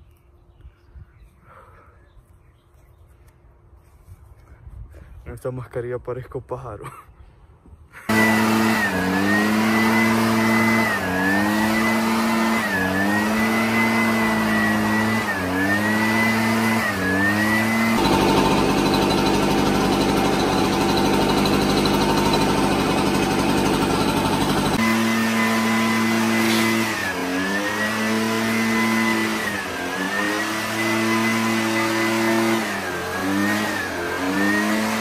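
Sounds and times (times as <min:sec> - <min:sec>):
leaf blower engine running: 0:08.1 - 0:35.0.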